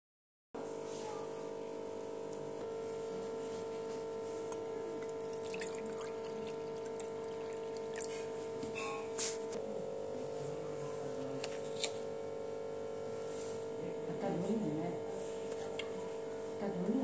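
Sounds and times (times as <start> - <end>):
water pouring into steel bowl: 5.0 - 8.2.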